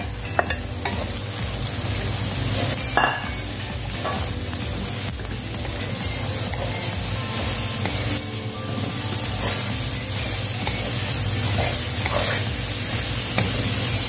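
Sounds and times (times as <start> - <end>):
meat sizzling in hot oil: 0.0 - 14.0
spatula tapping pan: 2.6 - 14.0
wooden spatula scraping wok: 3.9 - 14.0.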